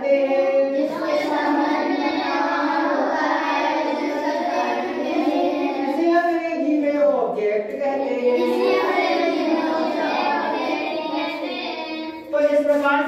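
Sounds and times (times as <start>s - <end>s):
children chanting in unison: 0.6s - 6.0s, 8.0s - 12.3s.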